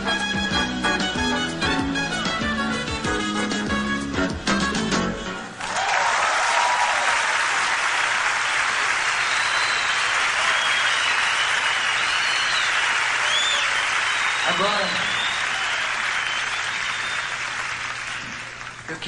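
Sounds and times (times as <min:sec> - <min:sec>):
cheers and whistles: 0:05.6 - 0:07.4, 0:09.0 - 0:18.5
audience applause: 0:05.6 - 0:19.0.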